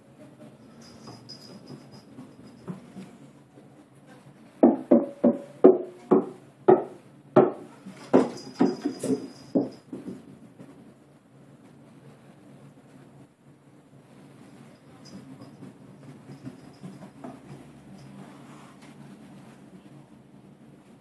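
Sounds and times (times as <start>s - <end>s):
ball bouncing on wooden stairs: 4.6s - 10.8s, 15.1s - 17.8s.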